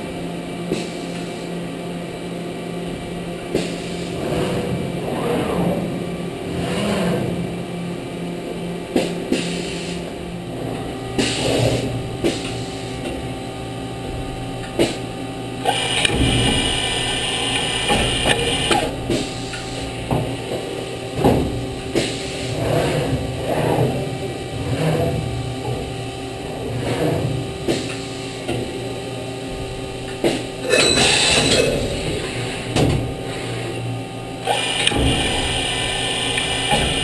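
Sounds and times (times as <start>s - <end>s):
motors whining and humming: 0.1s - 37.0s
pneumatic hissing: 11.2s - 12.8s, 15.6s - 19.9s, 34.4s - 37.0s
mechanical clunks and clicks: 15.6s - 20.4s, 34.5s - 35.6s.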